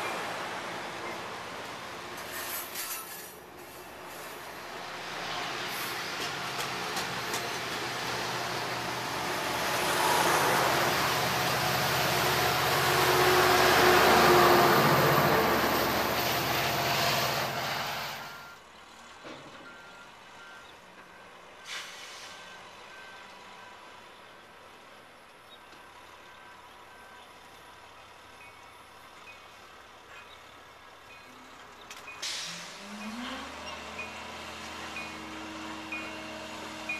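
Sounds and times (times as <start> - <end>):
passenger train cars rumbling: 0.0 - 18.5.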